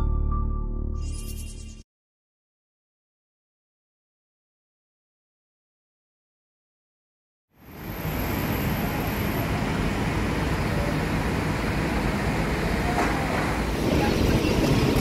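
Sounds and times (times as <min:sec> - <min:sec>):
road traffic rumble: 0:07.6 - 0:15.0.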